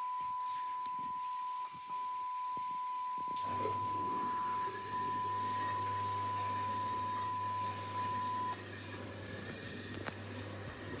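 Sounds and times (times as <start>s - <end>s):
tape hiss: 0.0s - 8.6s
low mains hum: 0.0s - 11.0s.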